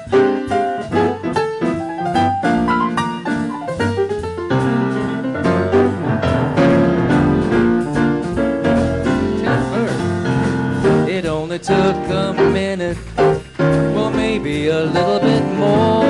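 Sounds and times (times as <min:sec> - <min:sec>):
grand piano: 0:00.0 - 0:16.0
upright bass: 0:00.0 - 0:16.0
man singing without words: 0:11.0 - 0:16.0.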